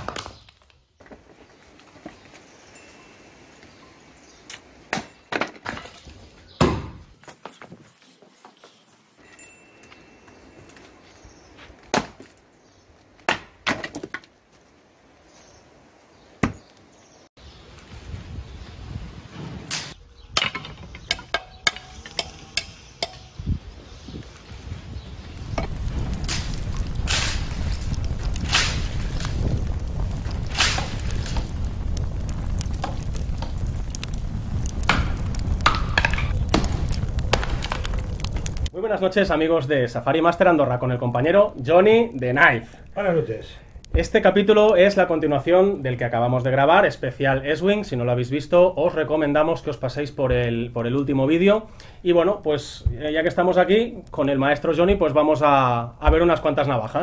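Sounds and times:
axe chopping wood: 0:00.0 - 0:00.4, 0:06.6 - 0:07.0, 0:11.8 - 0:12.4, 0:13.2 - 0:14.3, 0:16.4 - 0:16.7
wood cracking as it splits: 0:00.0 - 0:02.1, 0:25.2 - 0:38.8
axe chopping branch: 0:11.9 - 0:12.4, 0:13.2 - 0:14.2, 0:28.4 - 0:29.0.

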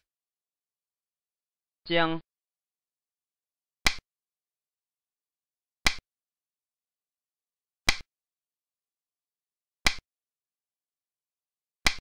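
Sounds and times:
game piece clicking down: 0:05.8 - 0:06.0, 0:07.9 - 0:08.1, 0:09.8 - 0:10.0.

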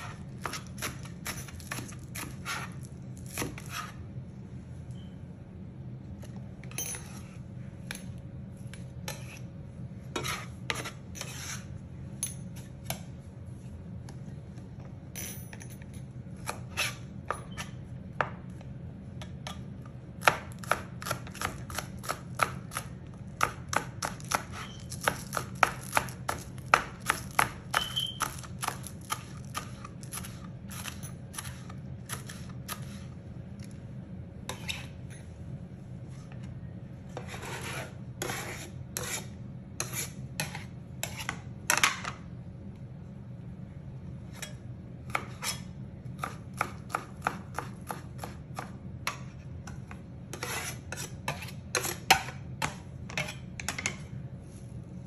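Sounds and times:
knife chopping on plastic board: 0:00.0 - 0:03.9, 0:20.2 - 0:33.0, 0:46.2 - 0:49.3
low steady hum: 0:00.0 - 0:55.0.

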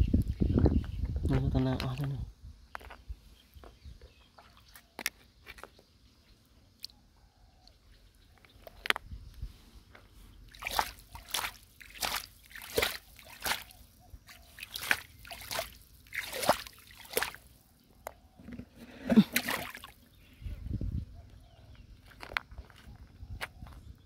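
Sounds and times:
shallow water sloshing: 0:10.5 - 0:17.7, 0:18.4 - 0:20.1.

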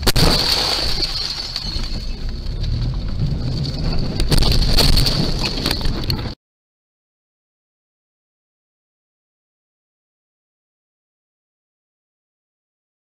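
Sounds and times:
road and engine rumble: 0:00.0 - 0:06.4.

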